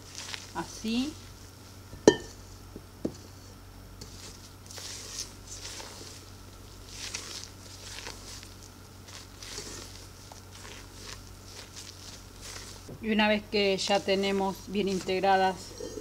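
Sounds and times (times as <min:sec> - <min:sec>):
spatula scraping a steel bowl: 0:04.0 - 0:06.2, 0:09.1 - 0:12.9, 0:14.8 - 0:16.0.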